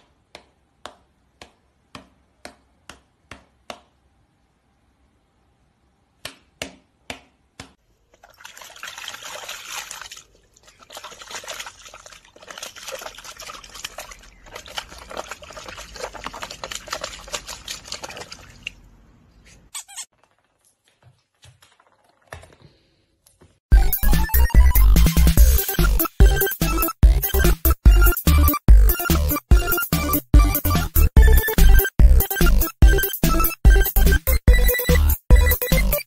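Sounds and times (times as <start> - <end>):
puppy splashing in water: 8.1 - 18.9.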